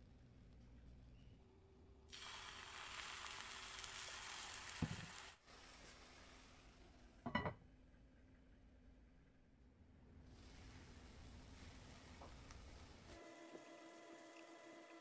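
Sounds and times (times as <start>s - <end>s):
water sizzling in hot pan: 2.1s - 6.6s.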